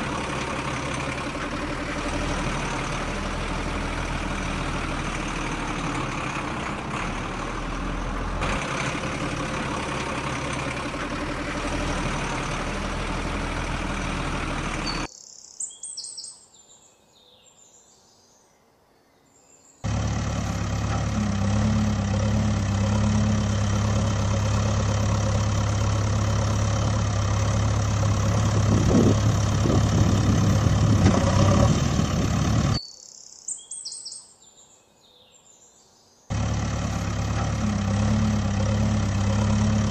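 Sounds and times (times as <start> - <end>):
engine low hum: 0.0 - 15.1, 19.8 - 32.8, 36.3 - 39.9
truck engine running: 0.0 - 15.1, 19.8 - 32.8, 36.3 - 39.9
faint bird chirps: 14.8 - 19.8, 32.7 - 36.2.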